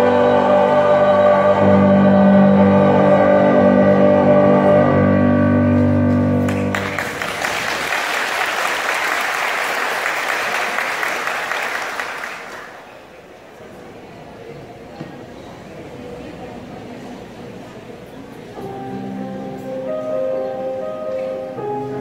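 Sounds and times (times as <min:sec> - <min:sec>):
choir singing a chord: 0:00.0 - 0:06.7
audience applauding: 0:06.4 - 0:13.0.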